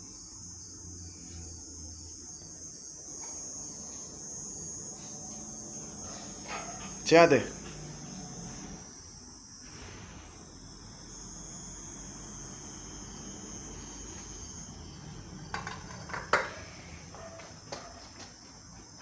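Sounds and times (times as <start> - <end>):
crickets chirring: 0.0 - 19.0
metal bowl set down on concrete: 15.5 - 16.6.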